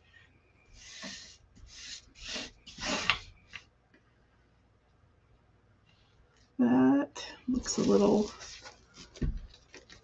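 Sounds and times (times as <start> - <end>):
hands rubbing a transfer on wood: 0.7 - 3.6.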